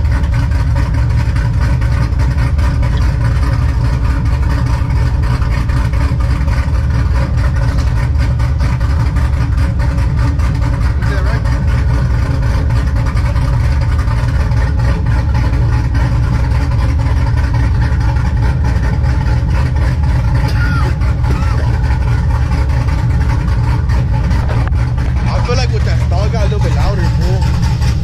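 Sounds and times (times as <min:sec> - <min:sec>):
truck engine idling loudly: 0:00.0 - 0:28.0.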